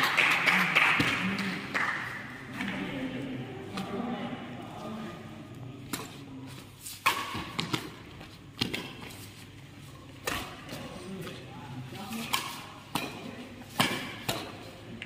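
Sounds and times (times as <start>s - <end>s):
badminton racket hitting shuttlecock: 6.8s - 9.3s, 9.9s - 15.0s.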